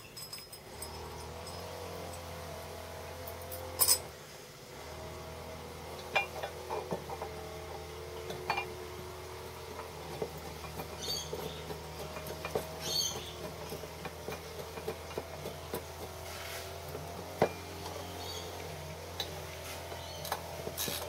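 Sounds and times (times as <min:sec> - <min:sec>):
metal parts clicking and scraping: 0:00.0 - 0:02.4, 0:03.2 - 0:04.1, 0:10.0 - 0:21.0.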